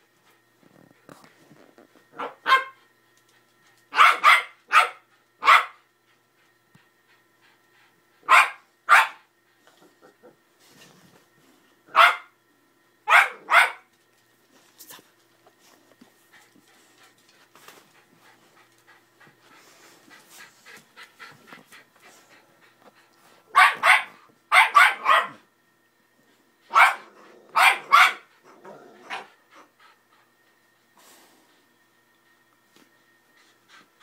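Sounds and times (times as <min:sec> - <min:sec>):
dog barking: 0:02.2 - 0:02.8, 0:03.9 - 0:05.8, 0:08.2 - 0:09.2, 0:11.9 - 0:12.3, 0:13.1 - 0:13.9, 0:23.5 - 0:25.4, 0:26.7 - 0:28.3
dog panting: 0:15.0 - 0:23.5, 0:29.3 - 0:30.6, 0:33.3 - 0:34.0.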